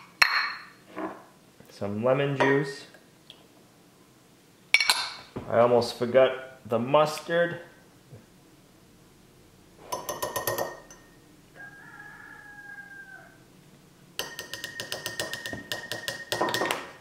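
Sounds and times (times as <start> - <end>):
metal spoon clinking on glass jar: 9.9 - 11.1, 14.2 - 16.8
distant rooster crowing: 11.0 - 13.6.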